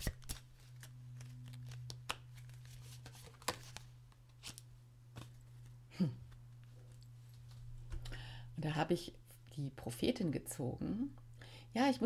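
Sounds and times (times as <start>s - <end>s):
cards tapping and rustling: 0.0s - 5.7s
steady low hum: 0.1s - 11.9s.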